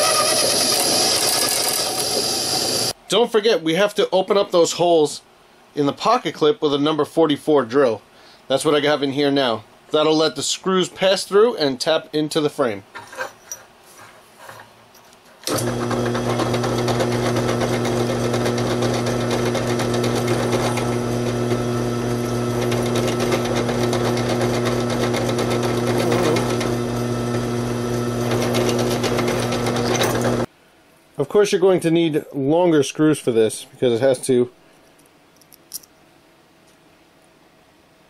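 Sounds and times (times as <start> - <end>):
drill press running: 0.0 - 3.0, 15.4 - 30.5.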